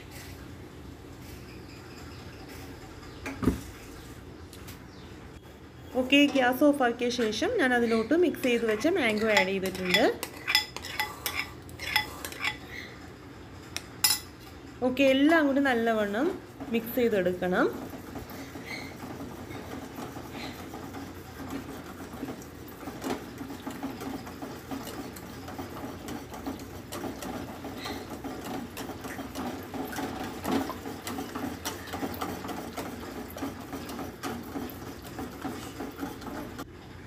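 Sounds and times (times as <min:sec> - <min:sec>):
whisk rattling in metal pot: 0:07.7 - 0:12.6, 0:15.0 - 0:36.7.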